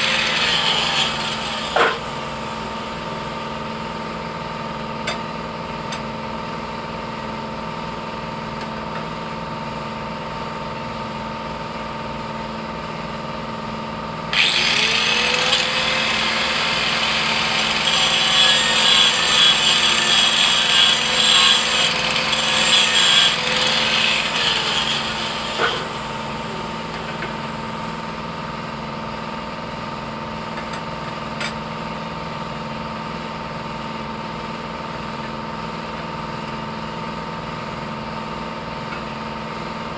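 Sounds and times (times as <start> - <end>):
angle grinder grinding steel: 0.0 - 3.0, 14.3 - 27.8
steady mechanical hum: 0.0 - 39.9.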